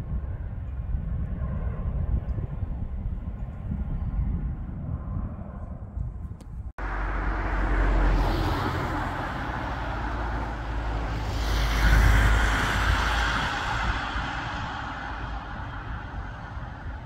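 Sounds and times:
road traffic rumble and hiss: 6.8 - 17.0.

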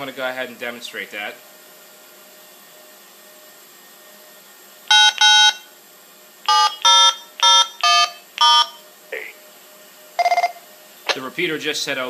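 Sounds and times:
short touch-tone beeps: 4.9 - 5.6, 10.2 - 10.6.

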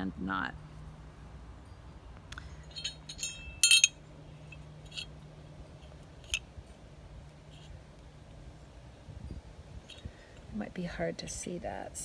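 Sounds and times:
metal bell and wind-chime clinks: 1.6 - 5.2.

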